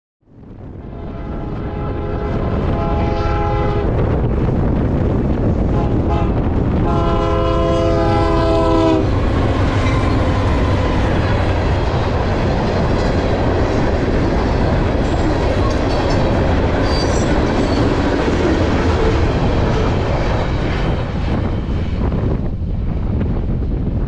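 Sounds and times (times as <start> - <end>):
heavy train rumble: 0.3 - 24.0
wind on microphone: 0.3 - 24.0
train air horn blasts: 0.8 - 4.0, 5.7 - 10.8
freight cars rolling past: 9.0 - 22.2.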